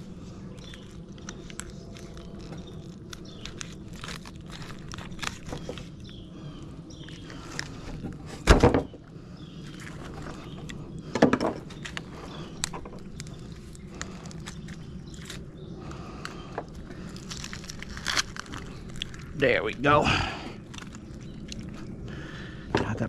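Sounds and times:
bone and cartilage crackling: 0:00.0 - 0:08.4, 0:09.4 - 0:23.0.

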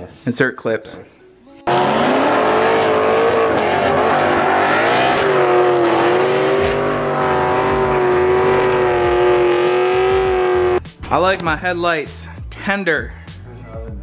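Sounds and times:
engines revving high: 0:01.7 - 0:10.8.

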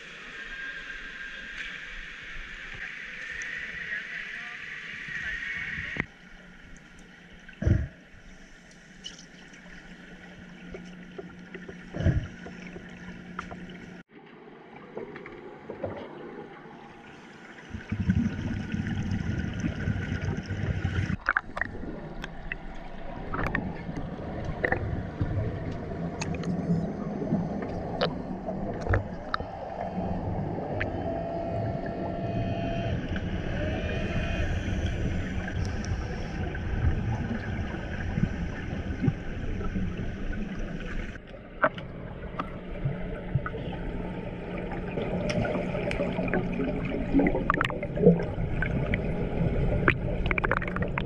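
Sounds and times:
muffled underwater rushing: 0:00.0 - 0:51.0
steady low hum: 0:01.4 - 0:51.0
low rumble: 0:17.7 - 0:51.0.

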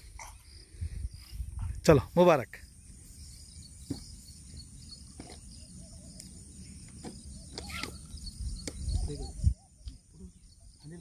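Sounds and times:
faint bird call: 0:07.0 - 0:10.7
wind rumble on microphone: 0:07.2 - 0:10.7.

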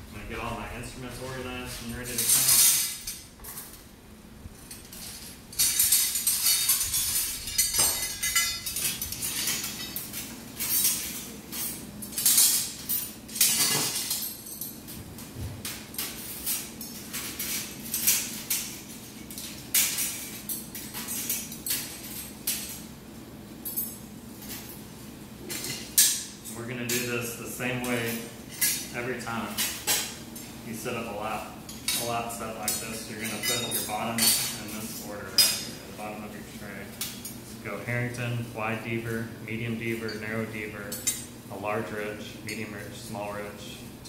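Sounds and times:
metal instruments clinking: 0:01.2 - 0:03.8, 0:04.6 - 0:15.0, 0:25.4 - 0:37.6.

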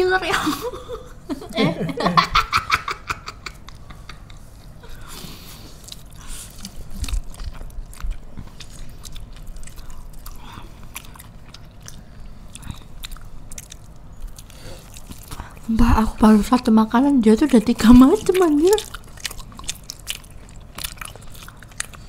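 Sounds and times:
crunchy chewing: 0:05.0 - 0:15.7, 0:17.0 - 0:22.0.

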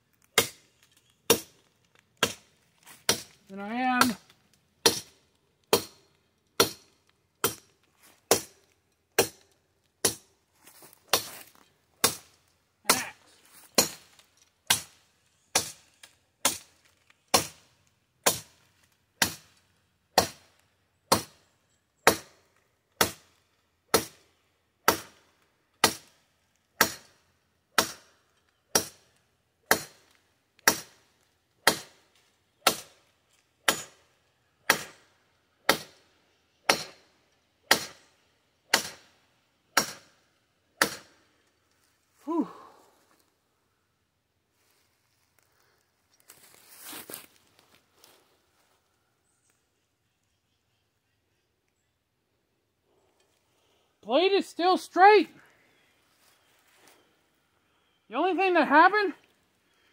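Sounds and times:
sword chopping tree branch: 0:01.3 - 0:01.6, 0:02.2 - 0:03.4, 0:04.8 - 0:06.0, 0:06.6 - 0:07.7, 0:08.3 - 0:08.6, 0:09.2 - 0:09.4, 0:10.0 - 0:10.3, 0:11.1 - 0:13.1, 0:13.8 - 0:14.1, 0:16.4 - 0:16.7, 0:18.2 - 0:18.5, 0:26.8 - 0:27.1, 0:27.8 - 0:28.2, 0:29.7 - 0:31.0, 0:31.6 - 0:32.0, 0:32.6 - 0:33.0, 0:33.6 - 0:34.0, 0:34.7 - 0:35.0, 0:36.7 - 0:37.0, 0:37.7 - 0:38.0, 0:38.7 - 0:39.1, 0:39.8 - 0:40.2, 0:40.8 - 0:41.2.

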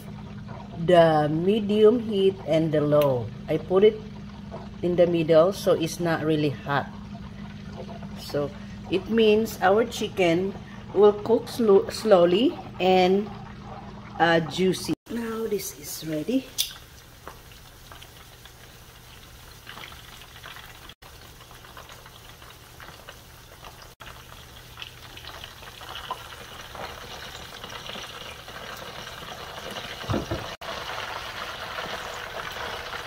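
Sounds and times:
chicken sizzling in hot oil: 0:15.2 - 0:33.0.

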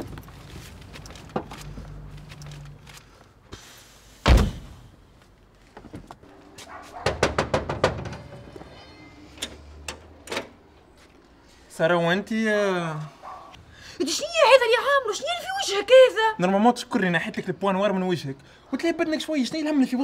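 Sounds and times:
knocking on metal door: 0:07.0 - 0:08.3.

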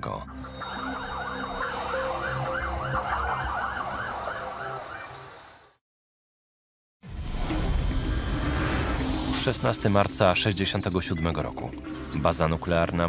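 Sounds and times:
siren yelping: 0:00.4 - 0:05.8.

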